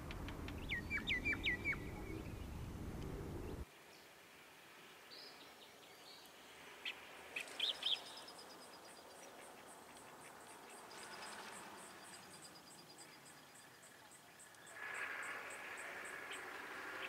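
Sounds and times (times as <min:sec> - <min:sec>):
birds chirping: 0:00.0 - 0:03.6.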